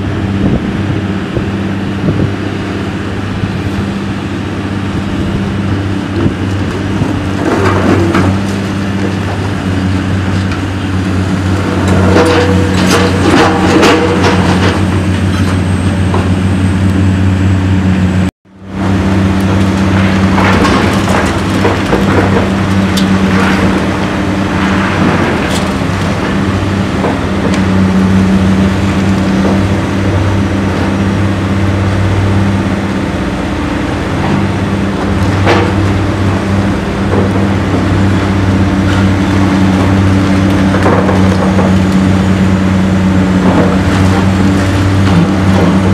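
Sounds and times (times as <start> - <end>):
heavy diesel engines running: 0.0 - 45.9
brick and concrete crashing: 19.6 - 27.4.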